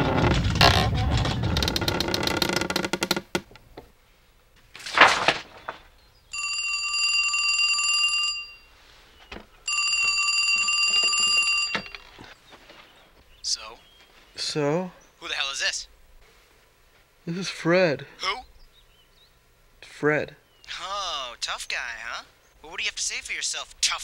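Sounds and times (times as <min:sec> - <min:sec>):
telephone ringing: 0:06.3 - 0:08.8, 0:09.6 - 0:12.3.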